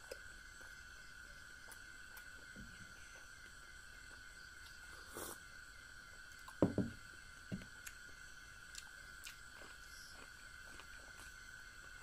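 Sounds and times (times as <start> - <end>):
mug knocking on wooden table: 6.6 - 7.0.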